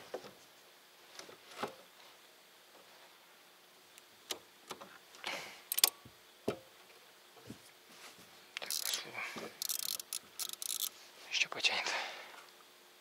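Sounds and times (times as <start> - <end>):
fishing rod and reel clicks: 5.7 - 6.0, 8.6 - 9.0, 9.6 - 10.9.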